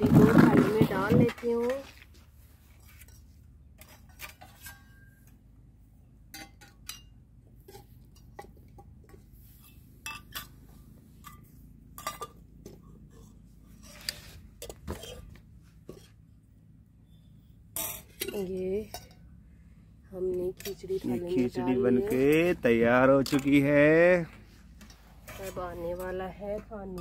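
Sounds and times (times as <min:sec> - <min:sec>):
spoon scraping and clinking dishes: 0:09.1 - 0:10.6, 0:11.2 - 0:16.2.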